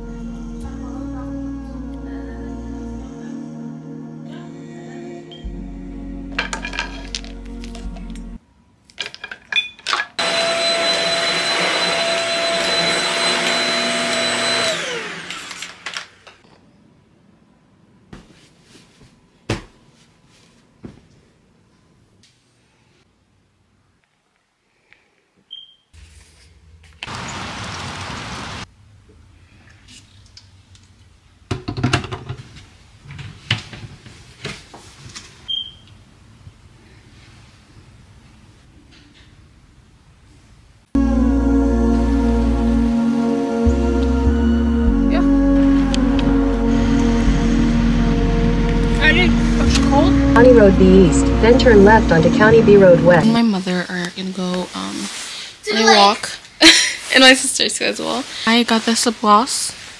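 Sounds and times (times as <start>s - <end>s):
high-speed electric motor: 10.2s - 16.2s.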